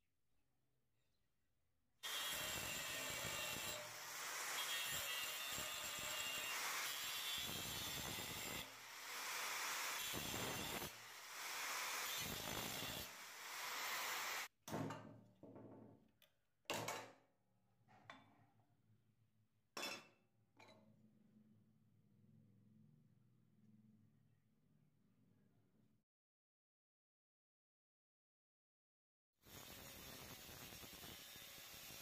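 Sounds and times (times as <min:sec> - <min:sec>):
angle grinder grinding metal: 0:02.1 - 0:14.5.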